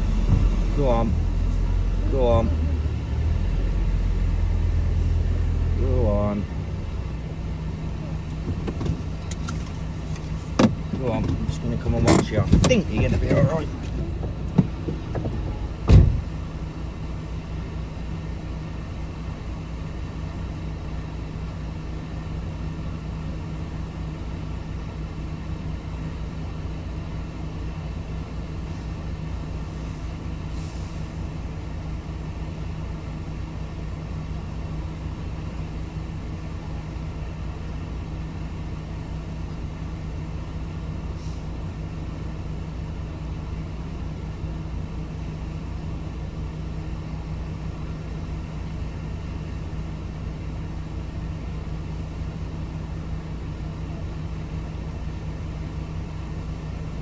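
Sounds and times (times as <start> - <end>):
vehicle engine idling: 0.0 - 57.0
vehicle door shutting: 10.5 - 16.3.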